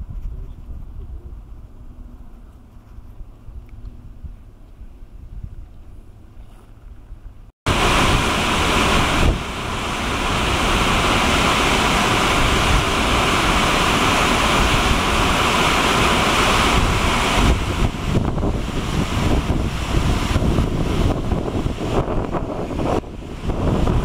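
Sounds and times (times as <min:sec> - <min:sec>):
wind buffeting microphone: 0:00.0 - 0:24.0
waterfall roaring: 0:07.7 - 0:24.0
whitewater rushing: 0:07.7 - 0:24.0.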